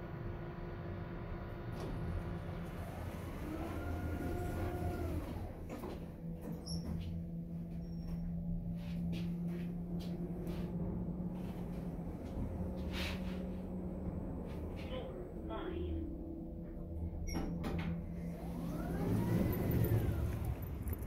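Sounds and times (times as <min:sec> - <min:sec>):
elevator door motor whine: 0:00.0 - 0:21.0
elevator humming: 0:00.0 - 0:21.0
elevator door clunk: 0:16.7 - 0:18.3.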